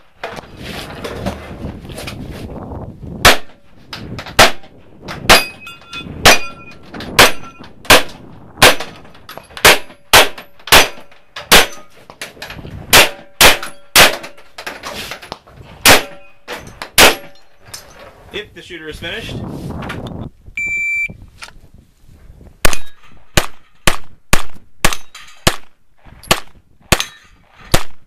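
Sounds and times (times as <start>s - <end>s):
metallic ring of steel targets: 5.2s - 12.0s, 12.9s - 14.6s, 15.8s - 18.0s, 24.9s - 25.5s, 26.2s - 27.8s.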